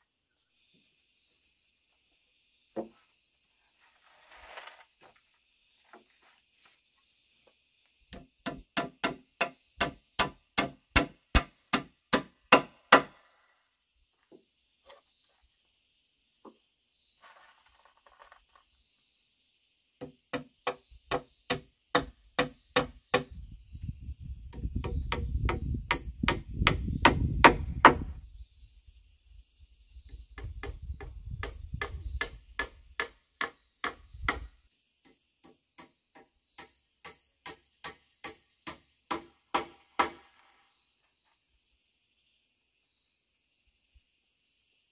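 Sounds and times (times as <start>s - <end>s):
high insect drone: 0.0s - 44.9s
hand tool striking wooden pole: 8.1s - 13.2s, 31.4s - 34.5s, 35.4s - 40.3s.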